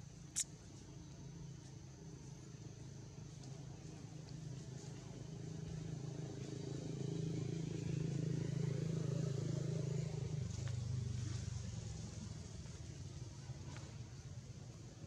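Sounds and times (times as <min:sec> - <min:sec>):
vehicle engine passing: 0:05.0 - 0:13.2.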